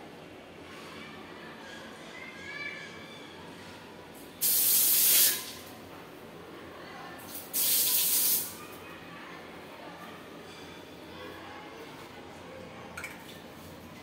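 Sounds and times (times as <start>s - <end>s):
hissing water spray: 4.4s - 5.6s, 7.3s - 8.6s.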